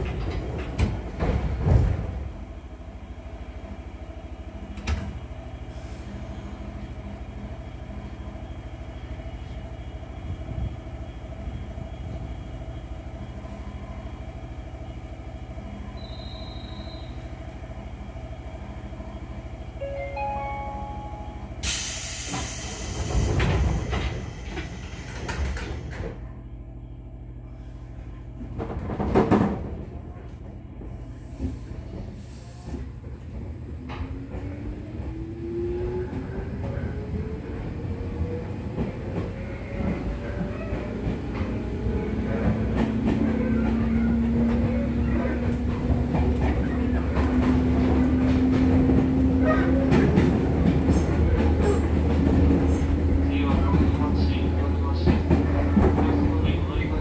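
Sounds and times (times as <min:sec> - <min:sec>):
train doors clunking: 0:00.0 - 0:02.4, 0:04.6 - 0:05.4, 0:19.8 - 0:26.3, 0:28.4 - 0:35.2, 0:37.7 - 0:57.0
electric train humming: 0:00.0 - 0:29.0, 0:30.5 - 0:57.0
loud air hissing: 0:21.6 - 0:25.2.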